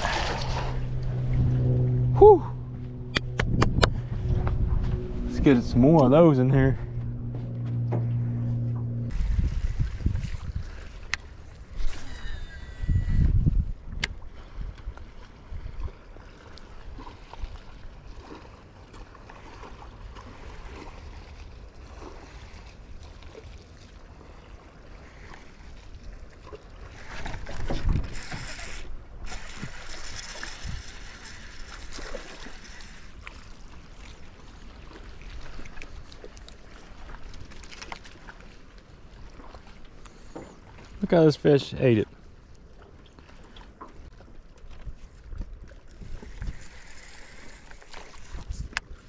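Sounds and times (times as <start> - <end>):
wind rumbling on microphone: 0.0 - 16.0, 27.0 - 33.3, 44.0 - 49.0
water moving around boat: 0.0 - 49.0.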